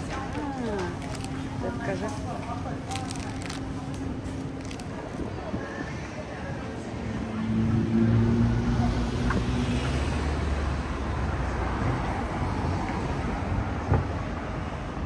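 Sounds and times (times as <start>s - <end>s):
road noise: 0.0s - 15.0s.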